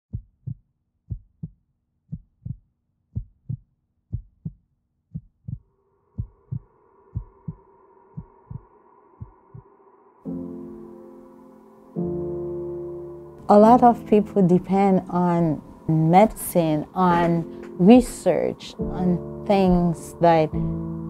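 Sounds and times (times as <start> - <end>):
heartbeat thumps: 0.1 - 2.6, 3.2 - 9.6
soft sustained music pad: 8.7 - 21.0.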